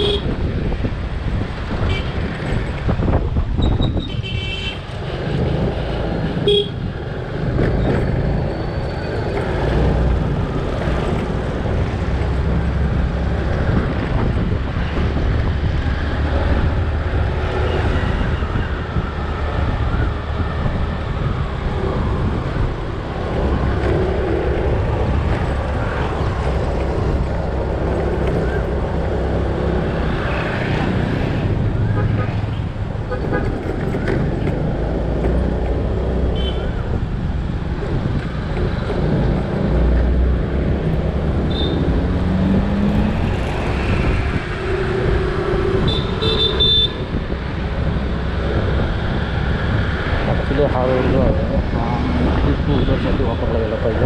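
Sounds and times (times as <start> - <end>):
wind buffeting microphone: 0.0 - 54.0
vehicle horn tooting: 41.5 - 41.8, 45.9 - 47.0.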